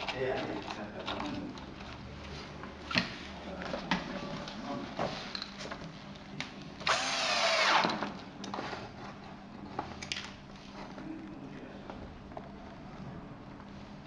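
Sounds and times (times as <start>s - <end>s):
cordless drill driving screw: 6.8s - 8.0s.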